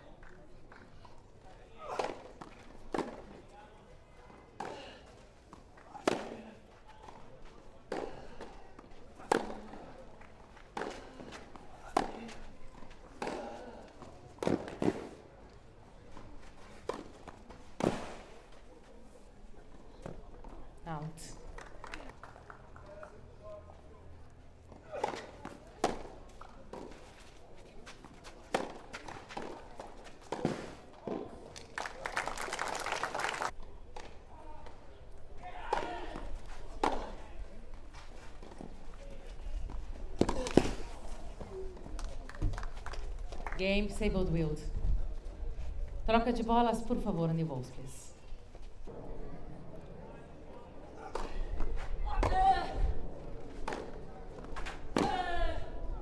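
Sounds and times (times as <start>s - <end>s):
tennis balls struck by rackets: 1.8s - 3.4s, 4.5s - 15.2s, 24.7s - 27.0s, 28.0s - 31.4s, 35.6s - 37.3s, 40.1s - 41.6s, 53.5s - 55.3s
crowd applause: 31.6s - 33.5s.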